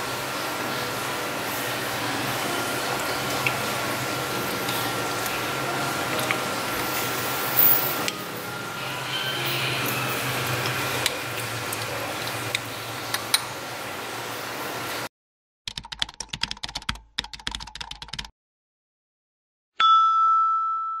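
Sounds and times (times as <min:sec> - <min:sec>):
computer keyboard typing: 0:15.7 - 0:18.3
bell-like ding: 0:19.8 - 0:21.0.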